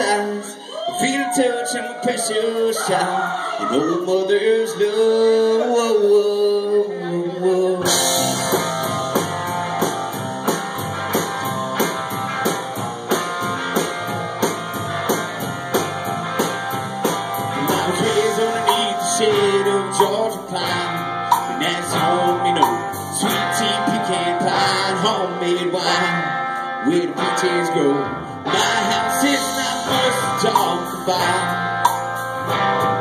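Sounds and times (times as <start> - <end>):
bass guitar: 0.0 - 2.9, 3.6 - 33.0
electric guitar: 2.7 - 33.0
drum kit beat: 7.8 - 23.7, 29.2 - 33.0.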